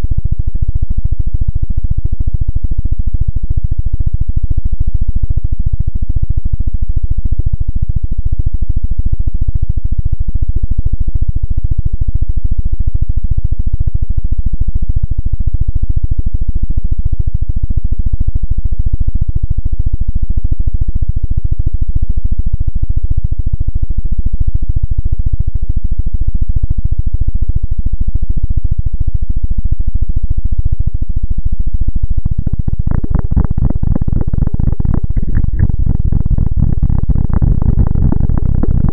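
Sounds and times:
distorted pulsing electronic drone: 32.0s - 38.9s.

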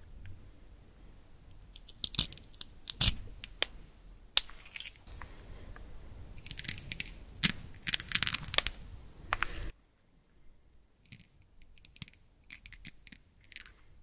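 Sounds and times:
velcro strips ripping: 1.8s - 3.6s, 6.4s - 8.8s.

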